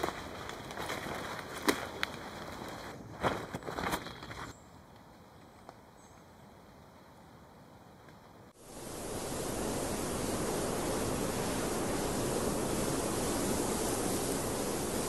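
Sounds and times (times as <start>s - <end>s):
steady rushing noise: 8.6s - 15.0s.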